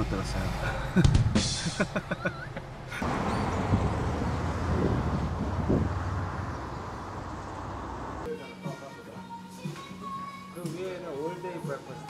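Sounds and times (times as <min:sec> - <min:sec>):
vehicle rumbling past: 0:02.5 - 0:08.3.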